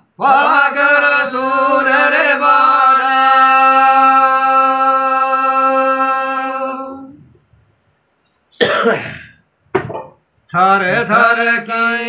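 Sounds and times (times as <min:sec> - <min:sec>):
person coughing: 0:08.6 - 0:09.4.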